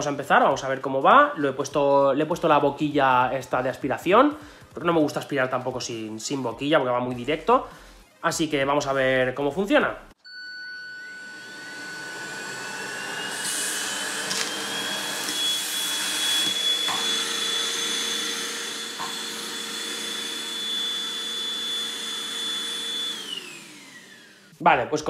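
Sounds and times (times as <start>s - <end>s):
vacuum motor whine: 10.3s - 24.6s
vacuum sucking debris: 11.5s - 24.3s.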